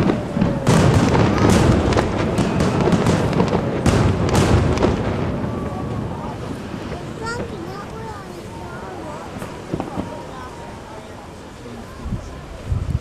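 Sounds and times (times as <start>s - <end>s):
firework shells bursting: 0.0s - 8.1s, 9.3s - 10.3s
firework crackling: 0.0s - 13.0s.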